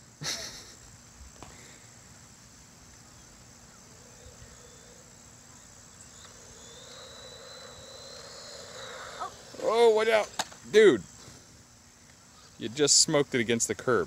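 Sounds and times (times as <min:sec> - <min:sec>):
low background hiss: 0:00.0 - 0:14.0
toy car electric motor whine: 0:03.9 - 0:10.6.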